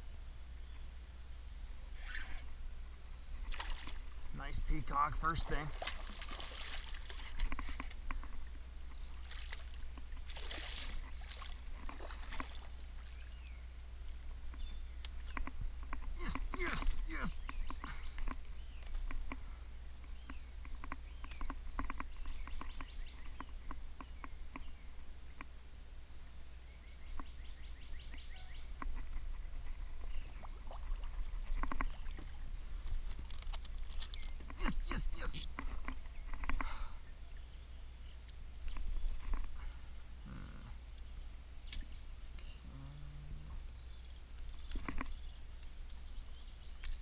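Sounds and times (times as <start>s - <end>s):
fish thrashing and splashing: 5.7s - 8.4s, 9.1s - 12.8s
knocks and clatter in kayak: 31.1s - 32.3s.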